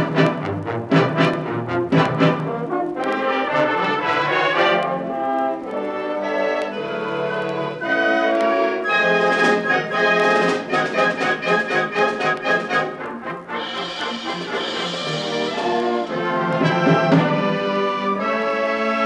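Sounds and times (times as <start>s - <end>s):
brass band playing held chords: 0.0s - 19.0s.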